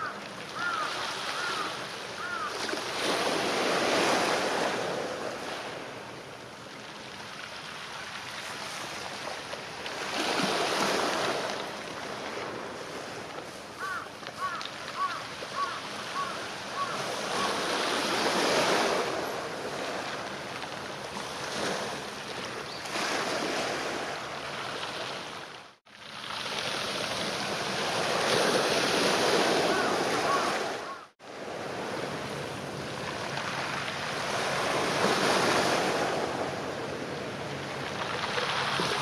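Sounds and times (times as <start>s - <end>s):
small waves washing onto rocks: 0.0s - 5.8s, 6.8s - 32.2s, 37.6s - 39.0s.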